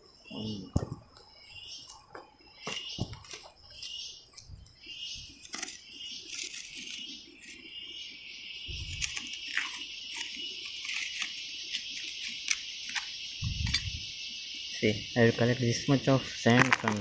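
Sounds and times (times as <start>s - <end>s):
insects chirping: 0.0s - 17.0s
dull thumps: 0.7s - 1.1s.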